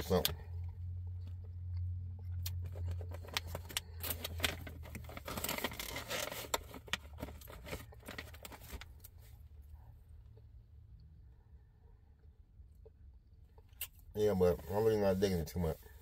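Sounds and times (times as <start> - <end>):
plastic package crinkling: 2.5 - 9.0.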